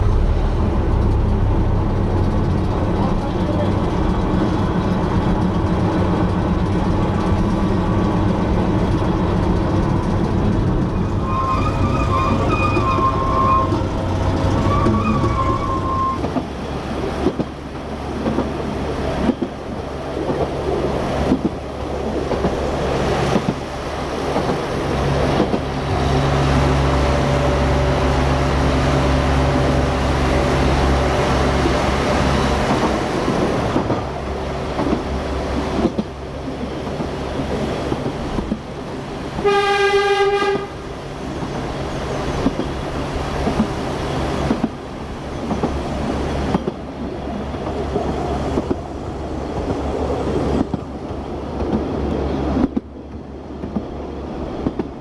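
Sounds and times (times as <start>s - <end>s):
locomotive engine drone: 0.0s - 55.0s
train wheel and rail noise: 0.0s - 55.0s
locomotive horn: 11.2s - 16.3s, 39.4s - 40.8s.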